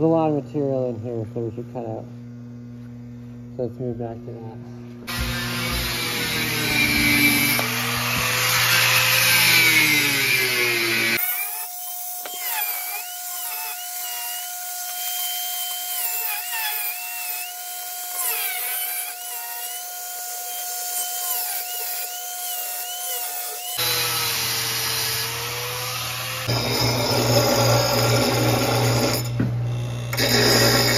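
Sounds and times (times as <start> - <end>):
angle grinder cutting steel: 5.1 - 30.9.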